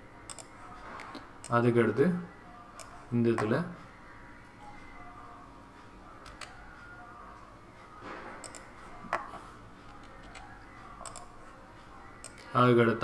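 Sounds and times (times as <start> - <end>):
low room noise: 0.0 - 13.0
mouse and keyboard clicks: 0.3 - 1.2.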